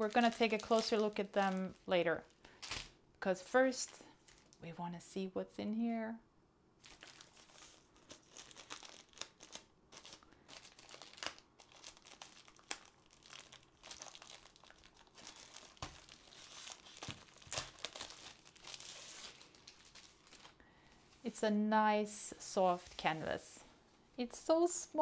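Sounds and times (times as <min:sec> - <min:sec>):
plastic sleeve crinkling: 0:00.0 - 0:03.0, 0:03.8 - 0:04.6, 0:06.8 - 0:21.4.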